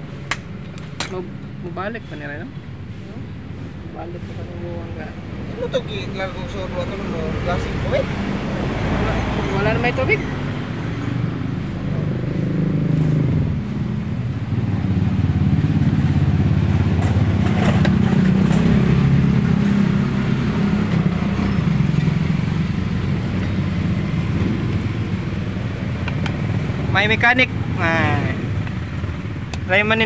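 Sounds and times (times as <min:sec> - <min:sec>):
vehicle engine running steadily: 0:00.0 - 0:30.0.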